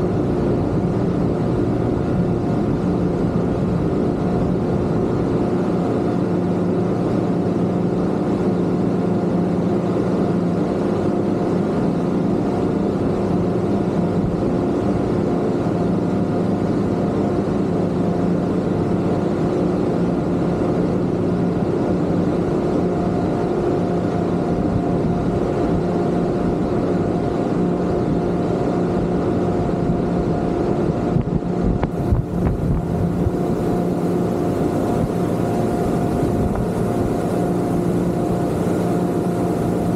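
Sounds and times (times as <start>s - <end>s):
outboard motors droning: 0.0s - 39.9s
rushing hiss: 32.0s - 39.9s.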